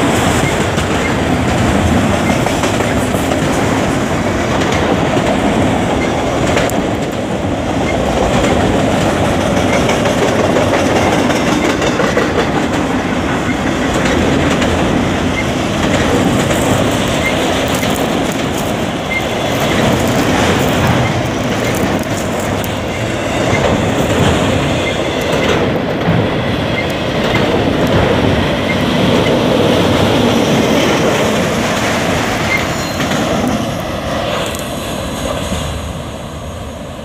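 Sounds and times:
steel wheels clattering over rail joints: 0:00.0 - 0:35.5
wheel squeal: 0:32.4 - 0:33.2.

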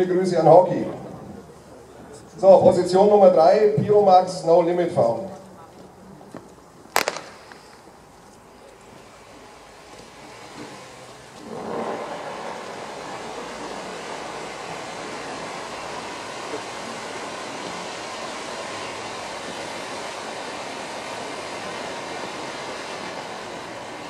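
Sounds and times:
firework fountain hissing: 0:05.1 - 0:24.0
small pop: 0:06.9 - 0:07.8.

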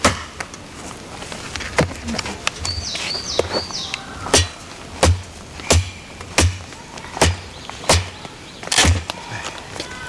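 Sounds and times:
knife chopping into wood: 0:00.0 - 0:00.4, 0:04.3 - 0:08.1.

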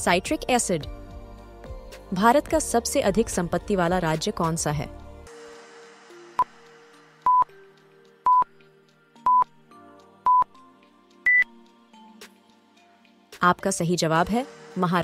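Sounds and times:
soft background music: 0:00.0 - 0:15.0
countdown timer beeps: 0:07.2 - 0:07.5, 0:08.2 - 0:08.5, 0:09.2 - 0:09.5, 0:10.2 - 0:10.5, 0:11.2 - 0:11.6.

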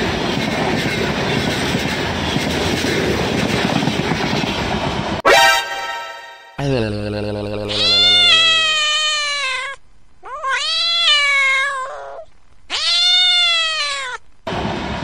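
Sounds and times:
cat meowing: 0:07.7 - 0:14.2.

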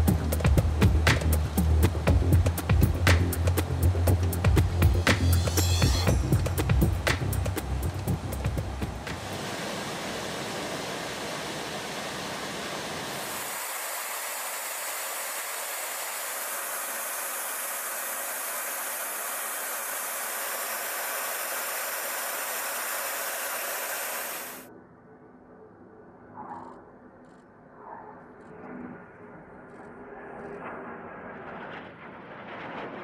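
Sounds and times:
jet aircraft cabin rushing noise: 0:06.1 - 0:24.6.

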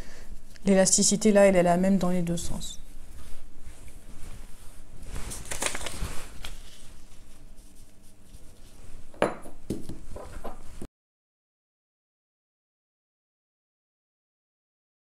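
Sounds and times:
hands rustling fabric and paper: 0:02.3 - 0:09.1.

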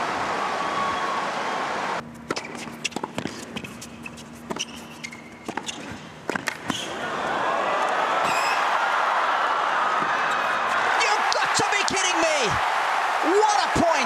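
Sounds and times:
tennis ball bounces: 0:02.3 - 0:03.7, 0:05.4 - 0:06.9
crowd noise: 0:06.8 - 0:14.0.

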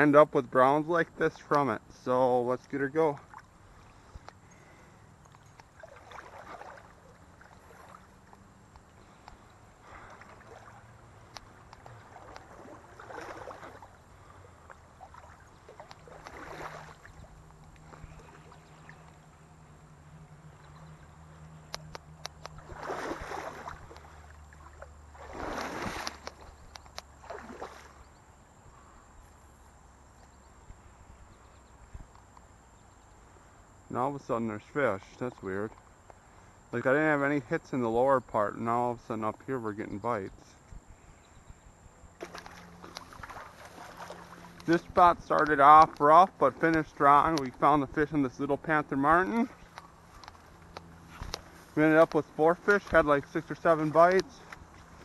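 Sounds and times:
legs wading through water: 0:02.6 - 0:28.9, 0:42.2 - 0:55.0
small clicks and knocks: 0:21.6 - 0:22.6, 0:26.0 - 0:27.1.

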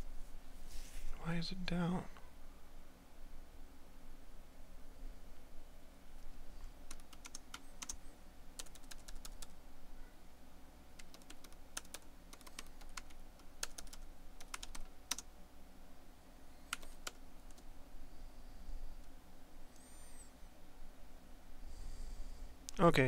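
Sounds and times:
typing on laptop keyboard: 0:06.9 - 0:08.0, 0:08.6 - 0:09.6, 0:11.0 - 0:15.2, 0:16.7 - 0:17.6.

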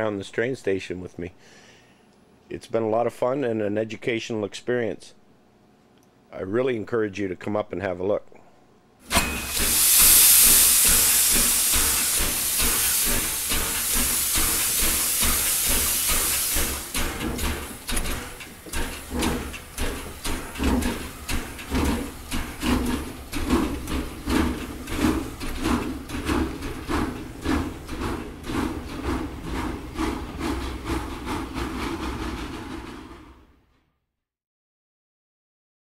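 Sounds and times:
steam hissing: 0:09.0 - 0:33.0
steam locomotive chuffing: 0:09.0 - 0:33.6.

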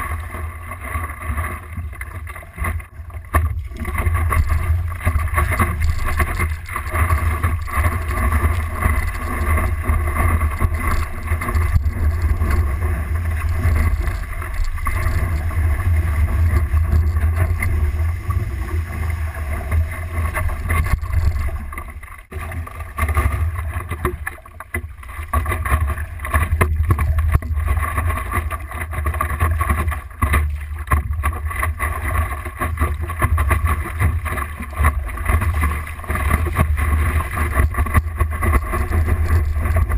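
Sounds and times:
paddle strokes splashing: 0:00.0 - 0:39.9
water rushing against a board: 0:00.0 - 0:39.9
heavy low rumble: 0:03.5 - 0:22.3.

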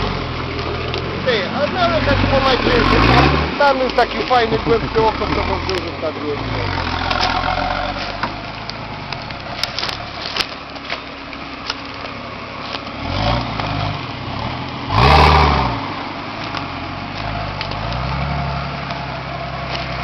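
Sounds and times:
diesel engine revving: 0:00.0 - 0:20.0.

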